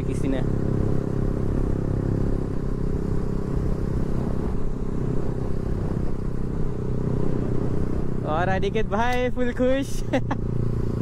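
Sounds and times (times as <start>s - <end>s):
motorcycle engine cruising: 0.0s - 11.0s.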